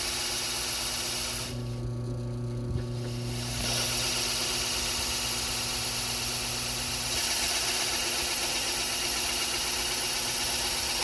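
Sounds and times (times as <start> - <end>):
drill press boring into wood: 3.0 - 11.0.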